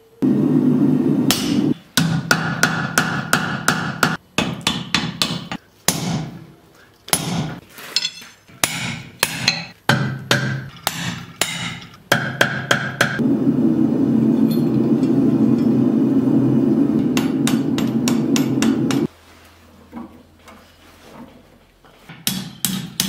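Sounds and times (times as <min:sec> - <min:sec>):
hammer striking steel on anvil: 0:01.3 - 0:06.4, 0:07.1 - 0:13.2, 0:14.4 - 0:15.8, 0:17.0 - 0:19.1, 0:22.2 - 0:23.0
anvil ringing tone: 0:14.3 - 0:15.9.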